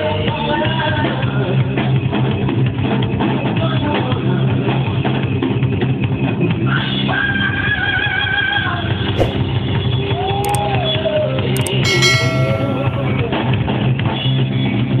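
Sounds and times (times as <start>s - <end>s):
bright bell ding: 11.6s - 13.3s.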